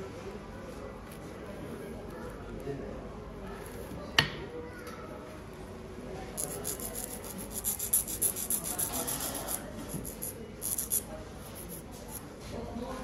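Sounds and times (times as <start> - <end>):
nail file scratching fingernail: 6.4 - 12.2.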